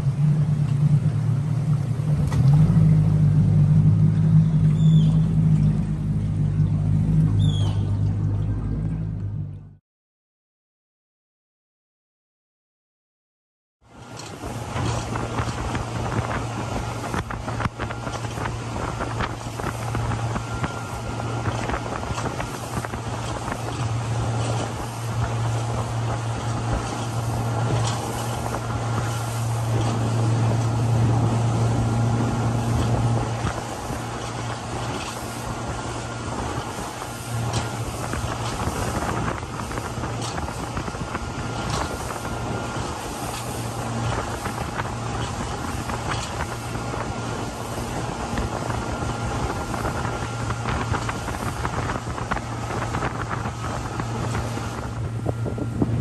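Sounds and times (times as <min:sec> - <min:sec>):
outboard motor humming: 0:00.0 - 0:09.8, 0:13.8 - 0:56.0
wind buffeting microphone: 0:13.9 - 0:56.0.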